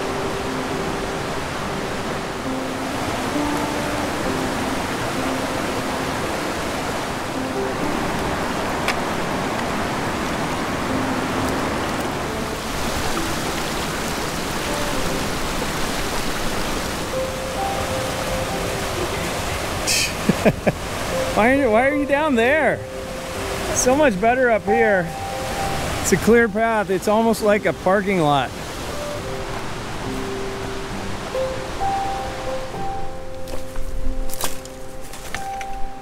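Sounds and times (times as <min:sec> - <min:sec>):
creek water rushing: 0:00.0 - 0:36.0
faint background music: 0:10.7 - 0:20.1, 0:20.9 - 0:36.0.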